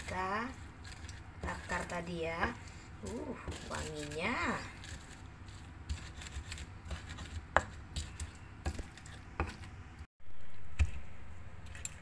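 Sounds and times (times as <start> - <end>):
pestle knocking in mortar: 5.9 - 9.7.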